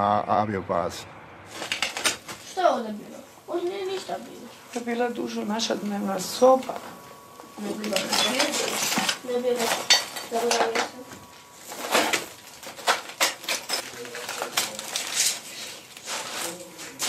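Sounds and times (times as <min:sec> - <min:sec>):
rubble clinking and crunching: 0:07.6 - 0:11.0, 0:11.6 - 0:16.5.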